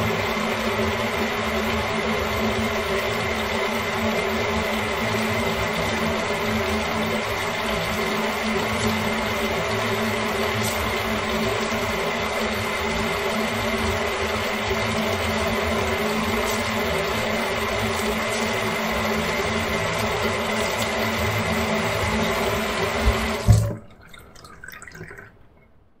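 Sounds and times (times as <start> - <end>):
tap water running into sink: 15.0 - 25.3
loud thump: 23.5 - 23.8.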